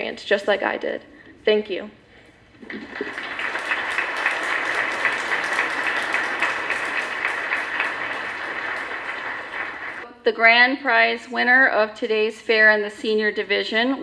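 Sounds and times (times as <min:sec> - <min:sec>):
audience applauding: 0:02.6 - 0:10.0.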